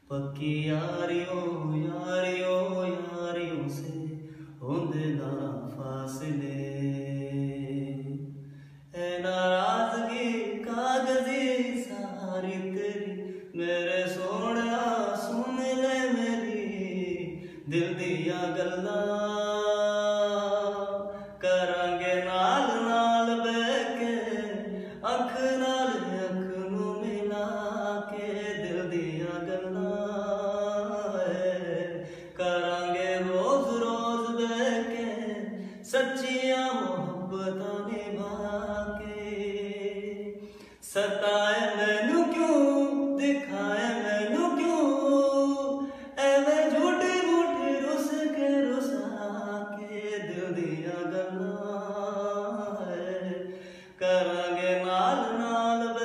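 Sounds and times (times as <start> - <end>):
man singing unaccompanied: 0.0 - 56.0.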